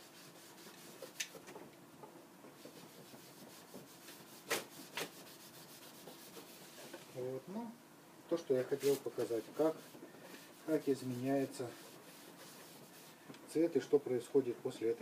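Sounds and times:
cloth rag scrubbing wood: 0.0s - 1.4s, 2.4s - 7.2s, 8.6s - 13.8s.

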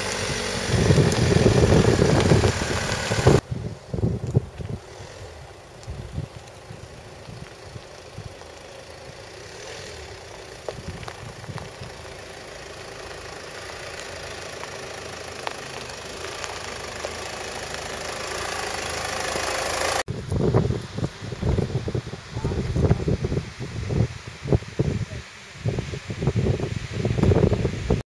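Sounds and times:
tyres crunching on stones: 0.0s - 3.4s, 4.1s - 20.4s
car engine at low revs: 0.0s - 20.1s.

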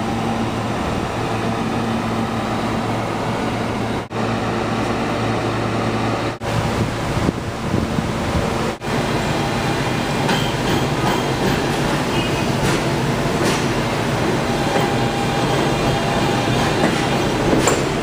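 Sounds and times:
train wheels rumbling on track: 0.0s - 18.0s
wheels clicking over rail joints: 16.7s - 18.0s.

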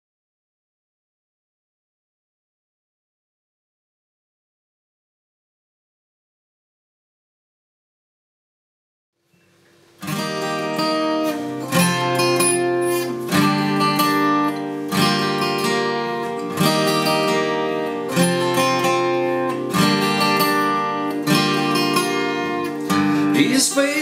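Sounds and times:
acoustic guitar strumming chords: 9.4s - 24.0s.

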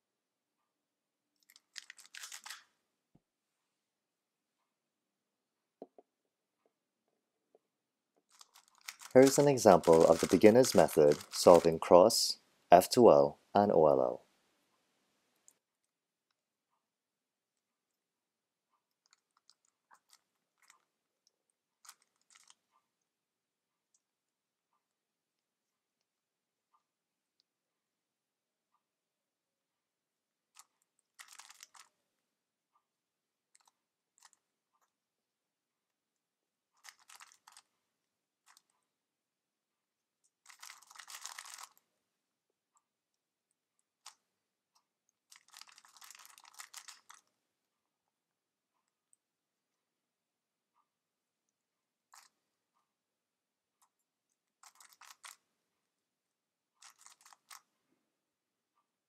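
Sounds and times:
puzzle cube clicking as turned: 1.4s - 2.7s, 8.3s - 11.8s, 30.6s - 31.9s, 36.8s - 37.7s, 40.5s - 41.8s, 45.3s - 47.3s, 54.6s - 55.4s, 56.8s - 57.6s
puzzle cube layers clicking: 1.4s - 2.7s, 8.3s - 12.0s.

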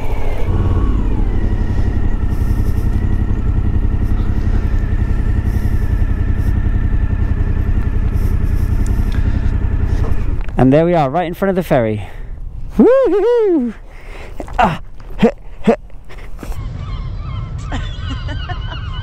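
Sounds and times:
motorcycle engine running: 0.0s - 12.7s.

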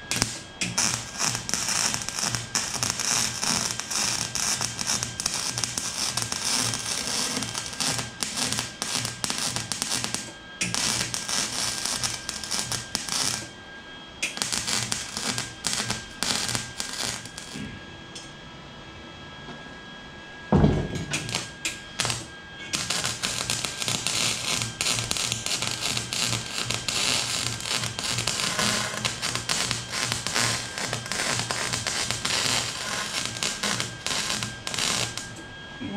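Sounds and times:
welder arc crackling: 0.0s - 13.6s, 14.2s - 17.6s, 21.0s - 35.4s
loud thump: 20.5s - 21.2s.

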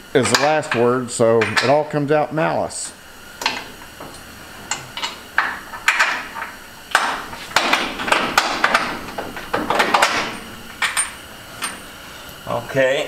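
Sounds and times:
metallic clanks and knocks: 3.4s - 11.8s.

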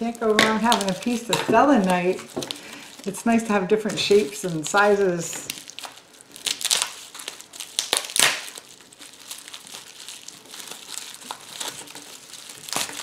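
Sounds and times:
plastic wrap crinkling: 0.0s - 13.0s.

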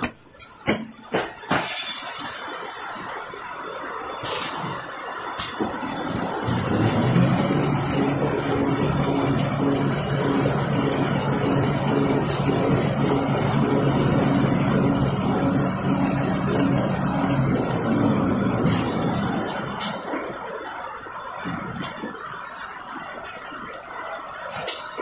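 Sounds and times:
steady mechanical hum: 0.0s - 25.0s
high motor whine: 5.7s - 21.1s.

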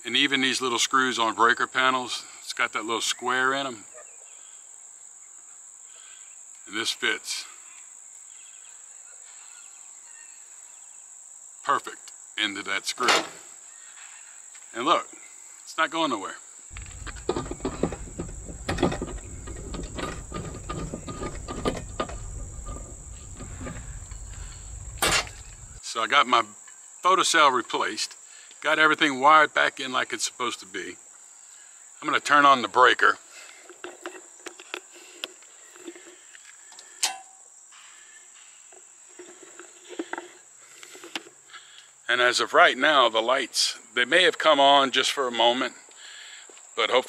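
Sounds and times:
insects chirping: 0.1s - 47.0s
footsteps and handling knocks: 16.7s - 25.8s.

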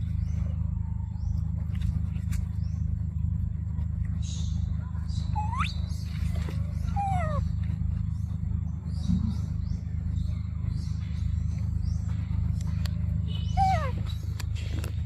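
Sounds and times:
steady low rumble: 0.0s - 15.0s
high chirps: 5.3s - 6.1s.

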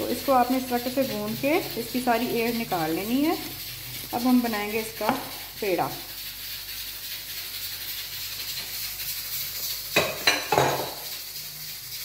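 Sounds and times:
steady hiss: 0.0s - 12.0s
crockery clacking on counter: 10.0s - 11.0s.

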